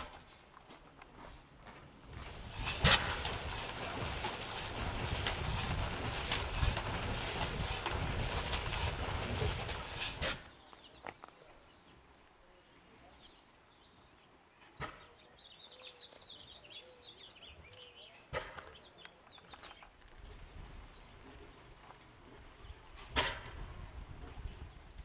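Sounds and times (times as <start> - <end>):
small birds chirping: 1.1 - 25.0
loud rushing noise: 2.1 - 10.5.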